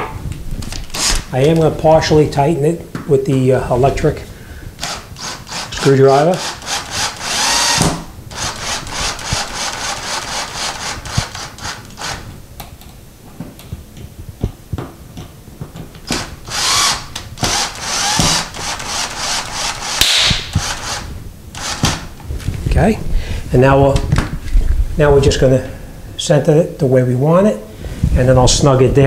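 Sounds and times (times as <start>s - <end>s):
cordless drill driving screws: 0.8s - 1.2s, 4.8s - 12.3s, 16.0s - 22.1s.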